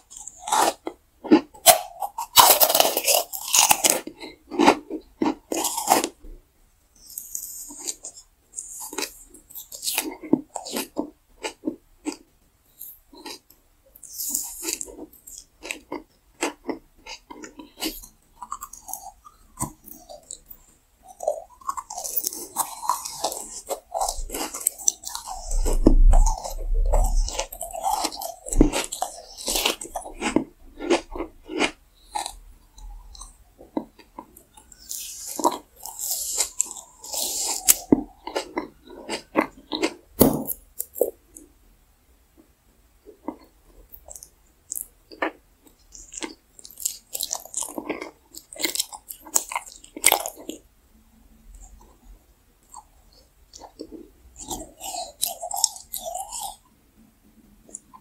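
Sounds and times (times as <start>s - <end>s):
candy being crunched and chewed: 0.0s - 6.2s, 7.0s - 12.2s, 12.8s - 41.5s, 43.2s - 50.6s, 52.7s - 56.6s
wet mouth sounds: 21.4s - 41.1s.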